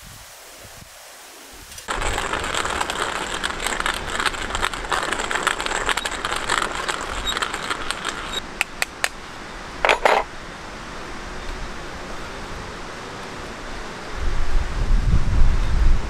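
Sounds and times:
coffee beans crunching in grinder: 1.9s - 8.4s
grinder clattering: 1.9s - 8.4s
sharp clicks: 1.9s - 9.2s.

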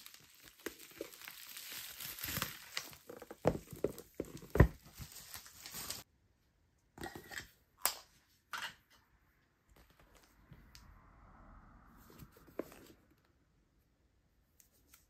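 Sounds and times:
bubble wrap and plastic crinkling: 0.0s - 6.1s.

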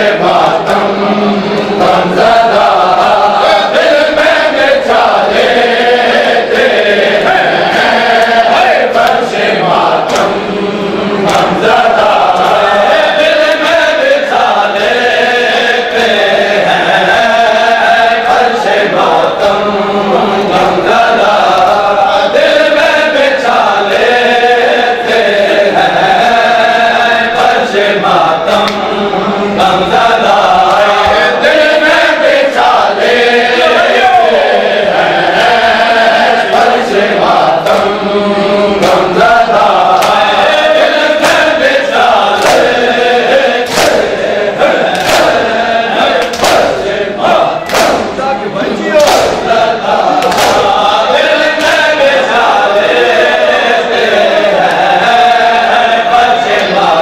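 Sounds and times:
men chanting in unison: 0.0s - 57.0s
hands slapping bare chests: 39.9s - 40.2s, 42.4s - 42.8s, 43.6s - 44.2s, 44.9s - 45.5s, 46.2s - 46.8s, 47.6s - 48.2s, 49.0s - 49.5s, 50.2s - 50.8s.

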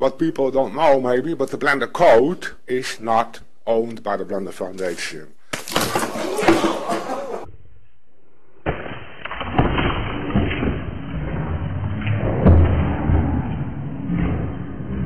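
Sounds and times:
plaster crashing down: 5.5s - 7.4s, 8.6s - 11.0s
rumbling noise: 9.4s - 15.0s.

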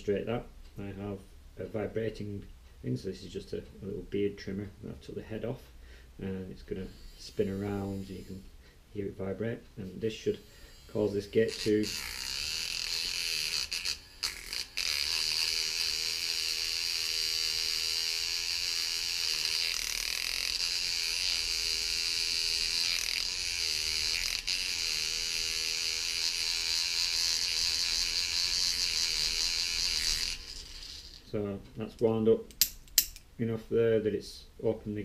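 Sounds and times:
trimmer motor buzzing: 10.4s - 31.3s
metal carabiner rattling: 32.5s - 33.2s.

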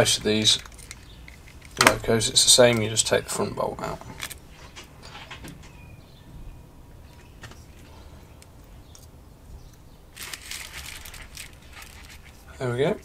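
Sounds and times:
plastic parts scraping: 0.0s - 2.9s, 4.0s - 5.4s, 10.2s - 12.6s
plastic model parts clicking: 0.4s - 2.0s, 10.2s - 12.3s.

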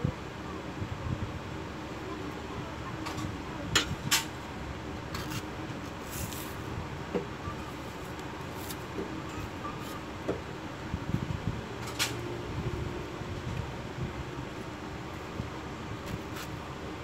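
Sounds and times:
gritty scrape: 5.2s - 6.6s.

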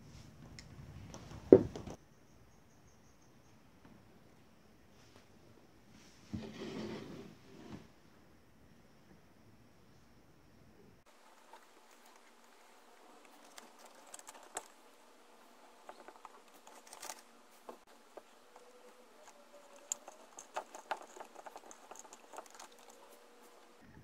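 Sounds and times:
fingers handling wire crank clicks: 18.0s - 23.6s.

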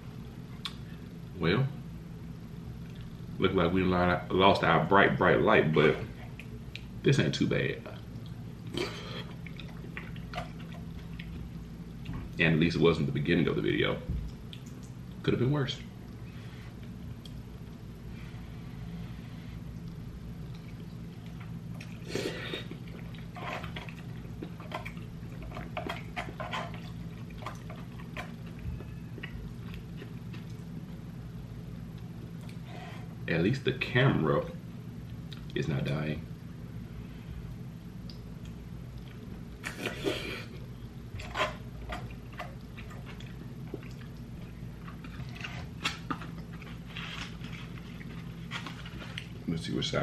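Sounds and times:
steady low hum: 0.0s - 50.0s
person chewing noodles: 20.5s - 30.8s, 41.4s - 49.4s.

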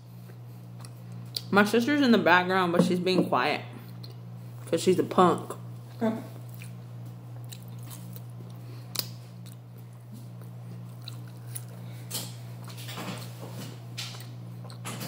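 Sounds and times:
steady low hum: 0.0s - 15.0s
person chewing: 0.2s - 1.5s, 6.4s - 12.8s, 14.1s - 14.8s.

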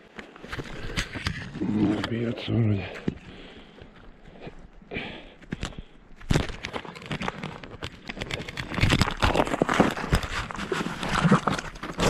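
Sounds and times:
crackling rustle: 5.6s - 12.0s.

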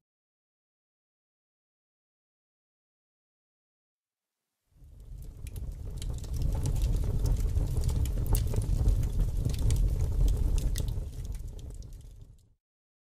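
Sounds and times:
low steady fire rumble: 4.8s - 12.5s
wood fire crackling and popping: 4.8s - 12.5s.

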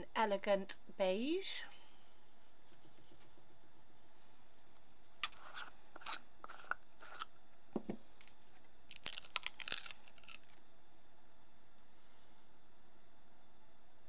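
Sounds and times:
plastic lid scraping: 5.2s - 8.0s
seal peeling crackles: 8.2s - 10.6s.

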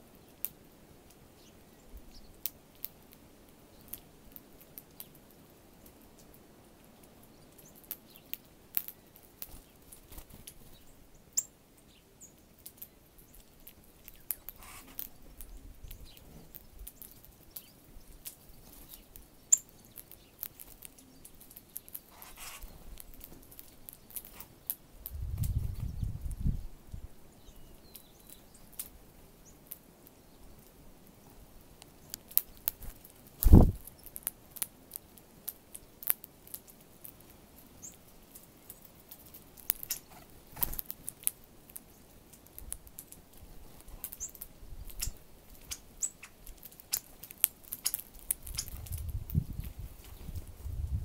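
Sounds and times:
birds pecking at seed: 0.0s - 51.0s
faint high bird chirps: 9.5s - 22.9s, 39.8s - 40.7s, 44.1s - 47.1s, 47.8s - 50.4s.

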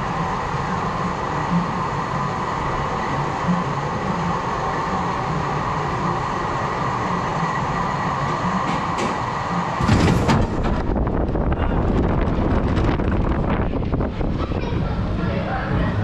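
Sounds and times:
mechanical hum: 0.0s - 16.0s
deep rush of air: 9.8s - 14.4s
wind noise on microphone: 9.8s - 16.0s.

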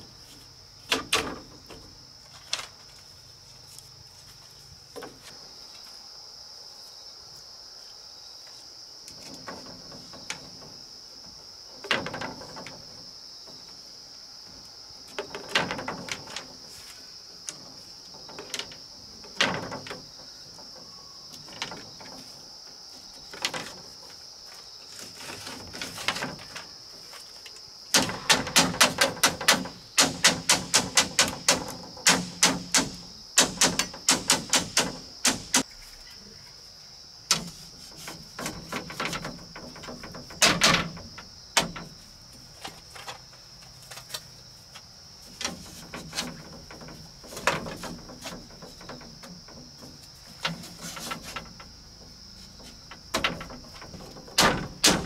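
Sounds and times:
bamboo slats clattering: 0.0s - 3.2s, 4.3s - 5.5s, 9.0s - 36.2s, 37.3s - 55.0s
high insect drone: 0.0s - 55.0s
hand tool striking bamboo: 27.9s - 35.7s, 37.3s - 41.9s, 52.6s - 55.0s.

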